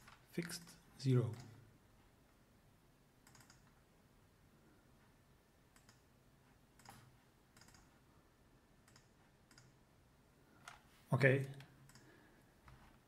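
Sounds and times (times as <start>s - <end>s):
computer mouse and keyboard clicks: 3.2s - 3.8s, 5.7s - 6.1s, 6.8s - 8.0s, 8.8s - 9.8s, 11.6s - 13.0s.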